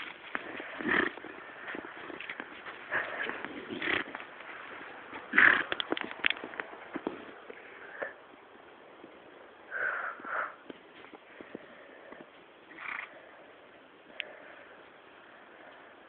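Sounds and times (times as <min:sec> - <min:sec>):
pony sounds: 0:00.0 - 0:04.3, 0:05.2 - 0:05.9.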